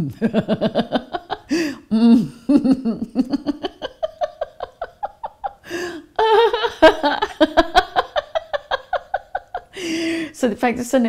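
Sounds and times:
woman laughing: 0:00.0 - 0:10.0.

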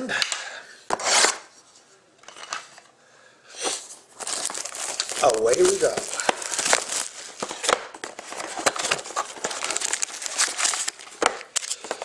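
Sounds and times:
plastic wrap crinkling: 0:04.0 - 0:12.0.

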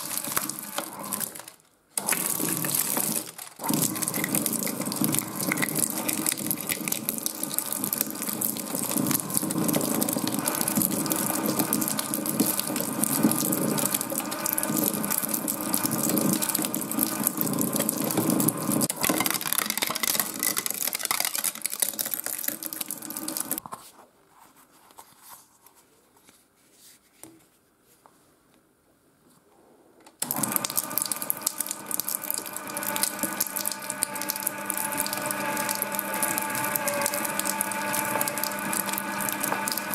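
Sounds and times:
shredder crunching plastic: 0:00.0 - 0:23.6, 0:30.2 - 0:39.9
shredder mechanical whine: 0:00.0 - 0:23.6, 0:30.2 - 0:39.9.

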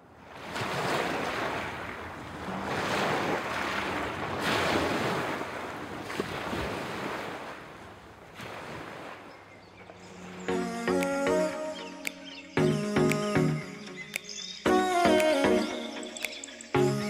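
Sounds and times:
waves washing onto pebbles: 0:00.3 - 0:09.3.

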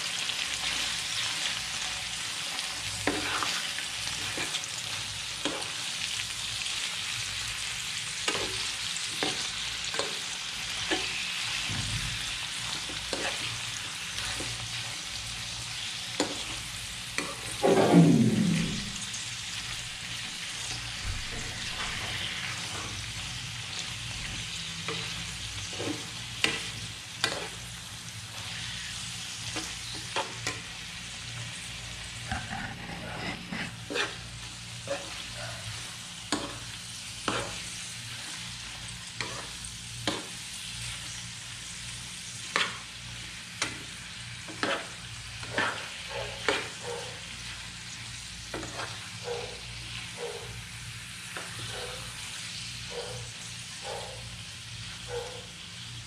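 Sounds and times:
food sizzling in frying pan: 0:00.0 - 0:56.0
loud downward gliding sound: 0:17.6 - 0:19.1
metal spoon scraping pan: 0:32.3 - 0:34.2.

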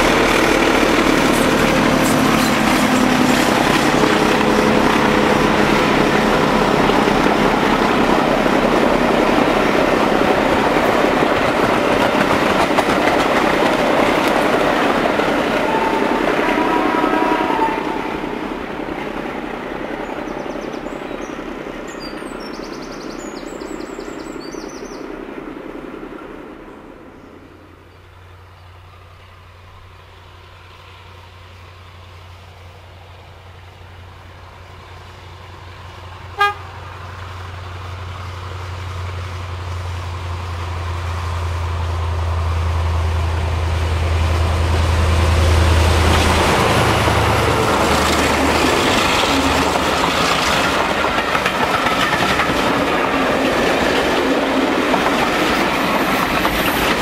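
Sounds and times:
diesel locomotive engine drone: 0:00.0 - 0:57.0
train rolling: 0:00.0 - 0:57.0
short train horn toot: 0:15.5 - 0:18.2, 0:36.3 - 0:36.9.

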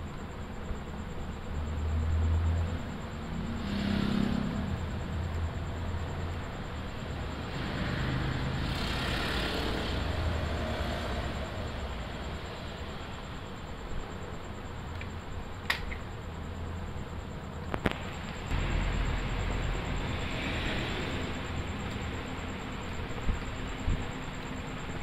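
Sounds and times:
motor vehicles passing: 0:02.2 - 0:06.4, 0:07.0 - 0:12.2, 0:18.5 - 0:22.2.

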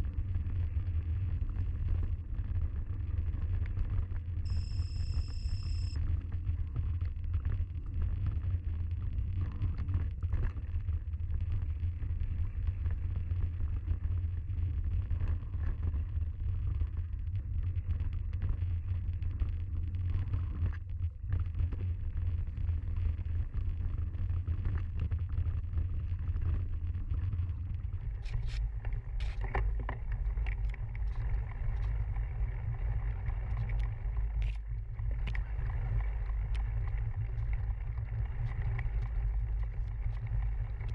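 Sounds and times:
wind rumble on microphone: 0:00.0 - 0:40.9.

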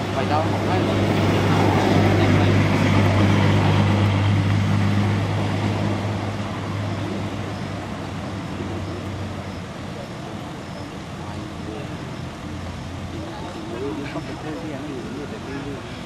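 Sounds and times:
vehicle engine humming: 0:00.0 - 0:16.0.

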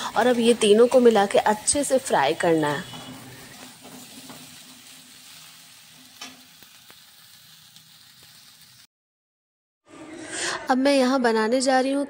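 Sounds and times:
metal spatula scraping a pan: 0:00.0 - 0:06.9
vegetables sizzling in oil: 0:00.0 - 0:08.9.

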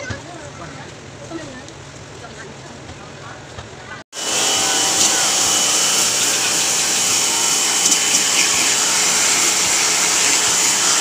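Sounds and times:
pressure washer spraying water: 0:04.2 - 0:11.0.

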